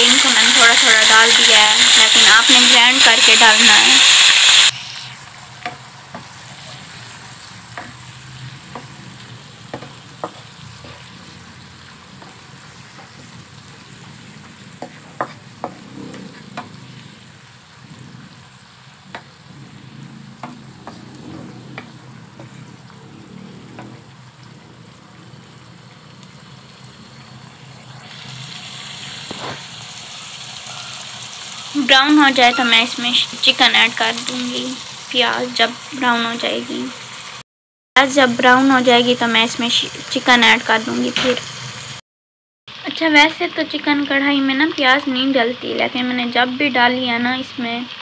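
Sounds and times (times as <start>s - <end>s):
onions sizzling in hot oil: 0.0s - 37.4s, 38.0s - 42.0s, 42.7s - 48.0s
wooden spatula scraping pan: 9.7s - 23.0s.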